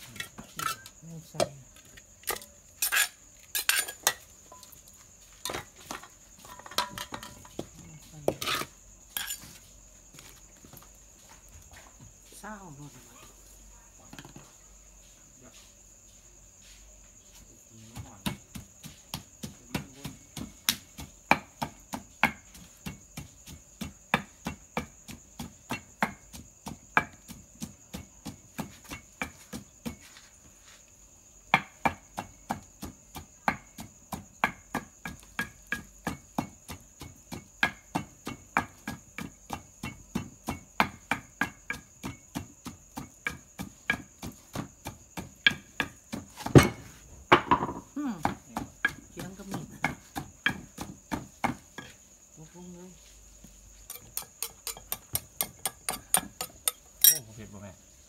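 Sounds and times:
crickets chirring: 0.0s - 58.0s
wooden pestle pounding in mortar: 17.9s - 30.0s, 31.5s - 52.0s, 53.8s - 57.2s.

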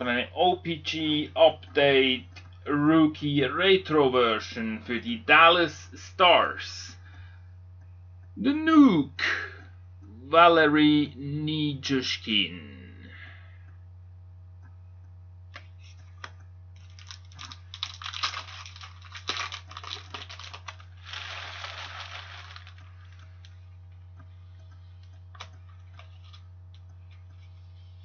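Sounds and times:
steady low hum: 0.0s - 28.0s
cards riffling: 16.8s - 23.6s.

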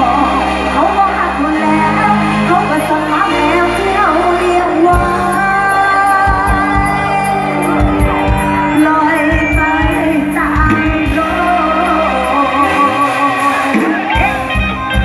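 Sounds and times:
woman singing: 0.0s - 14.6s
live band playing amplified music: 0.0s - 15.0s
drum beat: 6.2s - 11.4s, 13.2s - 15.0s.

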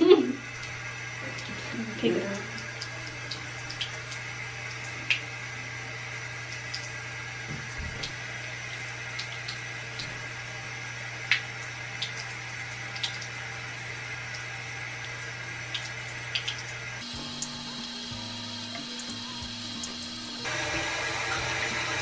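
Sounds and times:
faucet running into sink: 0.0s - 22.0s.

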